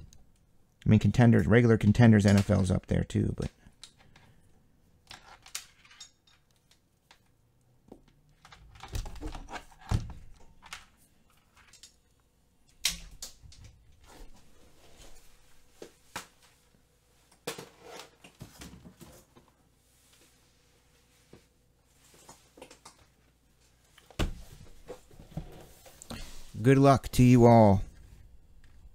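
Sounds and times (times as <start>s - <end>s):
objects handled on a tabletop: 3.8s - 12.3s.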